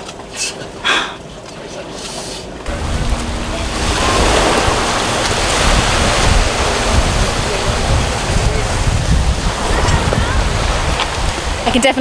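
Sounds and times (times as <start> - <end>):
small waves washing on beach: 2.7 - 12.0
wind buffeting microphone: 2.7 - 12.0.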